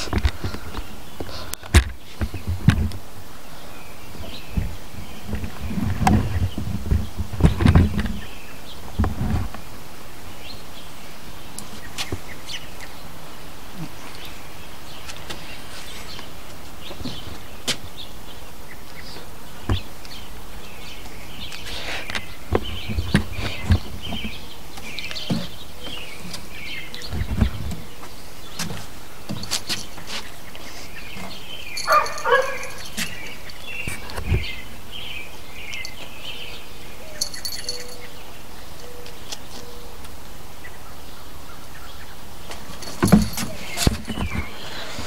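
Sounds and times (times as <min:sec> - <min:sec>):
birds chirping and singing: 0:00.0 - 0:45.0
short loud bird calls: 0:30.2 - 0:38.2.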